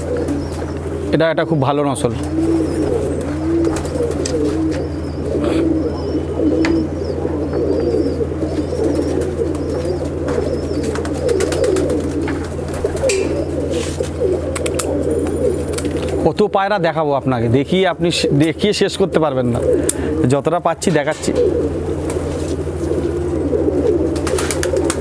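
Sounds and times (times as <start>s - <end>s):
pigeons cooing: 0.0s - 25.0s
steady low hum: 0.0s - 25.0s.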